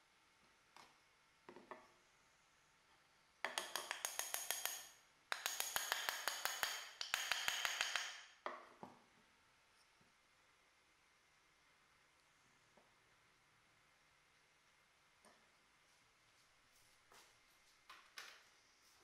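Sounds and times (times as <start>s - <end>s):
wooden mallet tapping on wood: 3.4s - 8.7s.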